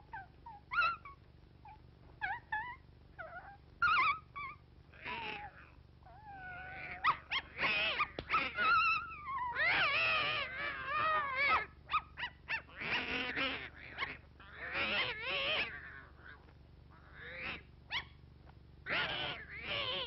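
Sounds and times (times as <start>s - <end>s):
cartoon dog and cat howls: 6.2s - 11.7s.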